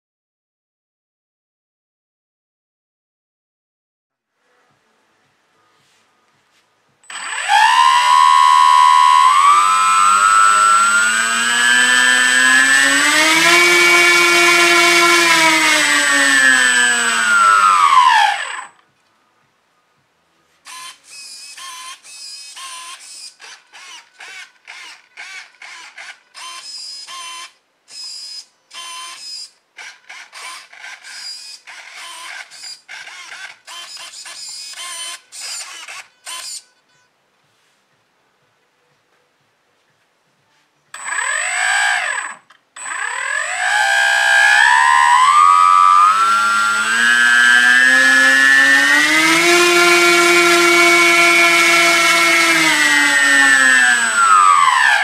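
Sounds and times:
electric motor whining: 7.1 - 18.8, 41.0 - 55.0
servos buzzing: 7.1 - 18.8, 20.7 - 36.7, 41.0 - 55.0.

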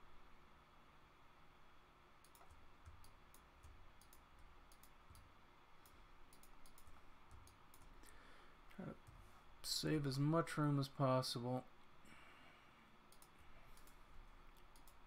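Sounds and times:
low steady hum: 0.0 - 15.0
mouse and keyboard clicking: 2.2 - 8.0, 13.1 - 15.0.

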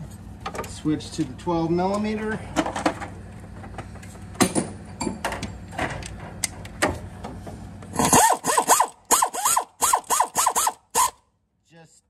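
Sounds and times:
pneumatic air ratchet bursts: 7.9 - 11.2.

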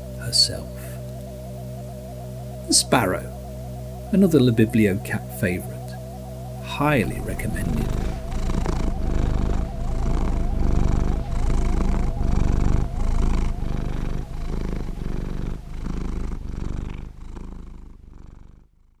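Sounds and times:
cat purring: 0.0 - 3.4, 4.1 - 19.0.

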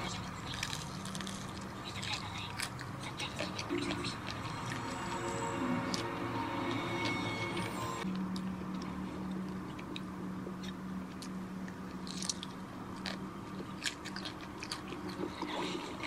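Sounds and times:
steady low hum: 0.0 - 16.0
person chewing crunchy food: 0.1 - 16.0
background music: 3.4 - 8.1.

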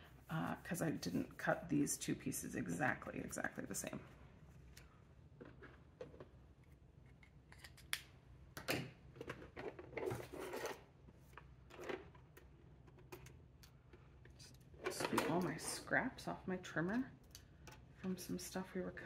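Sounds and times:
rustling and clattering: 9.1 - 13.3.

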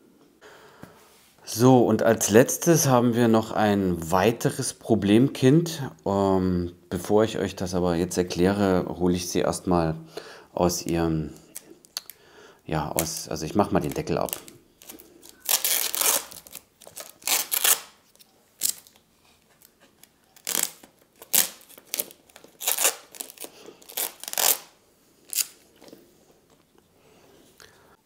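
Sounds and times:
adhesive tape peeling: 13.9 - 19.0, 19.6 - 25.6.

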